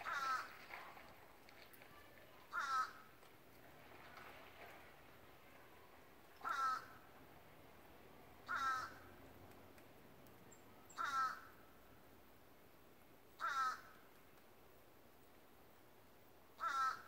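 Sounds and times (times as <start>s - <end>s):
crow cawing: 0.0s - 0.5s, 2.5s - 3.1s, 6.4s - 7.0s, 8.4s - 9.1s, 10.9s - 11.6s, 13.4s - 14.0s, 16.6s - 17.0s.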